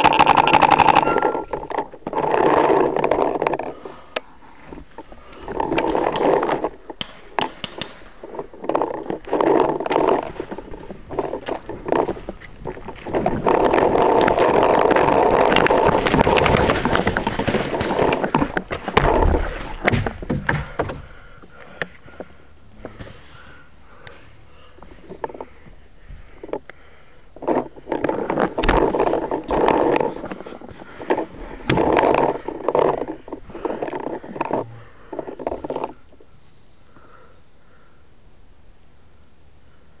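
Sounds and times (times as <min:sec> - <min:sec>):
heavy breathing: 0:03.6 - 0:05.8, 0:20.4 - 0:27.8, 0:30.0 - 0:36.1
sharp knocks and clicks: 0:06.9 - 0:21.1
clothing rustling: 0:08.0 - 0:20.3.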